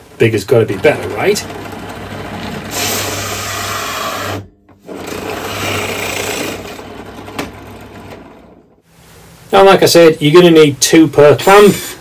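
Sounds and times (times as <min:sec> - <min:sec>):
bit rasping through wood: 0:00.5 - 0:08.5
drill press motor hum: 0:00.8 - 0:08.7.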